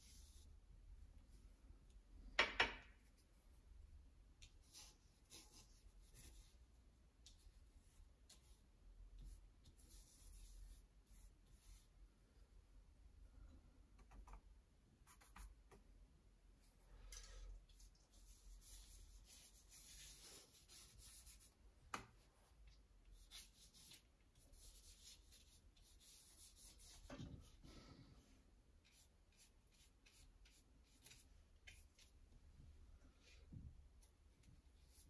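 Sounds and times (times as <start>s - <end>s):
paintbrush swishing on paper: 0.0s - 0.6s, 4.4s - 12.0s, 16.7s - 21.6s, 22.2s - 27.7s, 28.7s - 32.4s, 33.0s - 35.0s.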